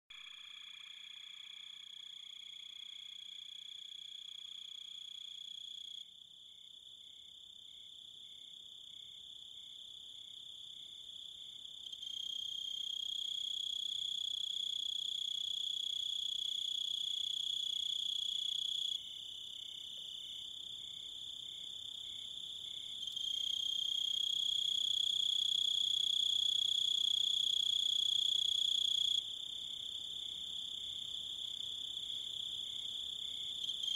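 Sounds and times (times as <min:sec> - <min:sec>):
high-pitched insect trill: 0:00.1 - 0:06.0.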